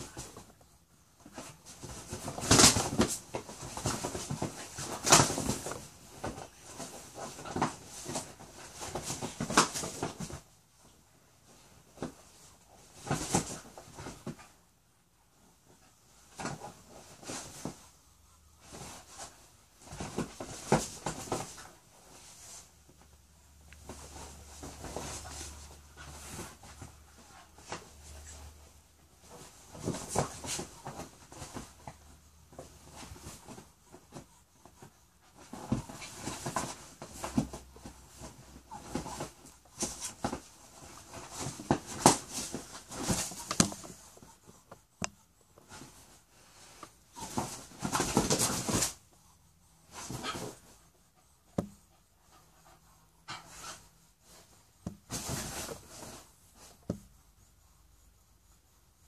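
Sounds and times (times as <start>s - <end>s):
dog scrabbling on leather couch: 29.2s - 34.3s, 35.2s - 44.0s, 47.1s - 49.0s.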